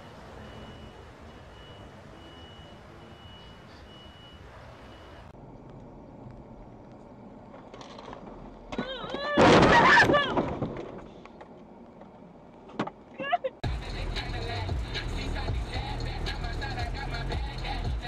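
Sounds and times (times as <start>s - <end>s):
high electronic beeps: 0.0s - 5.3s
vehicle road noise: 0.0s - 18.0s.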